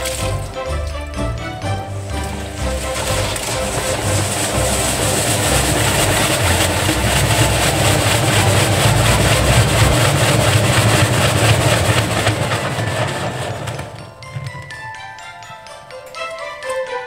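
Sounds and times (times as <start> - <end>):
washing machine drum spinning: 0.0 - 14.9
rhythmic beat from turning drum: 0.0 - 16.6
low motor hum: 1.6 - 14.0.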